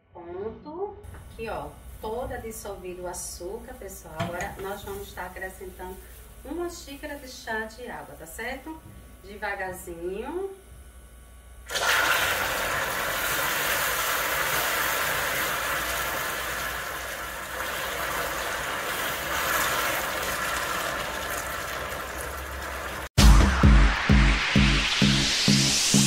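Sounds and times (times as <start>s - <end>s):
caramel sizzling and hissing: 1.4s - 8.8s, 11.7s - 23.2s.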